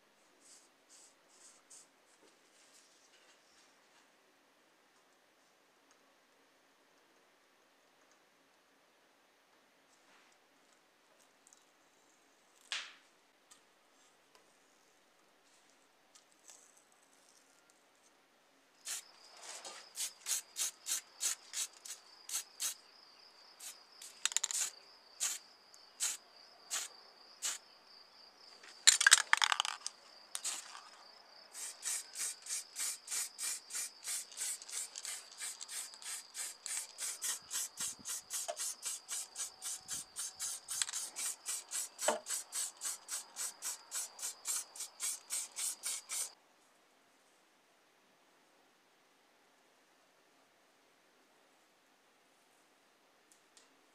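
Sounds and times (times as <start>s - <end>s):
spray paint hissing: 18.8s - 19.2s, 19.9s - 22.8s, 23.6s - 25.4s, 26.0s - 27.6s, 30.4s - 30.8s, 31.5s - 46.4s.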